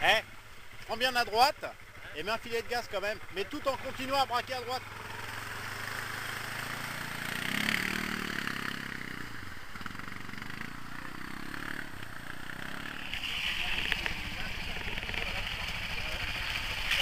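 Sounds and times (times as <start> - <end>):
quad engine revving: 3.3 - 17.0.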